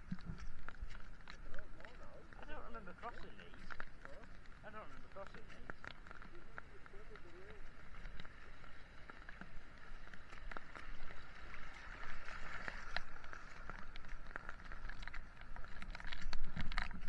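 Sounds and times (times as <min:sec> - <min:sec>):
light rain: 0:00.0 - 0:17.0
water running over rocks: 0:00.0 - 0:17.0.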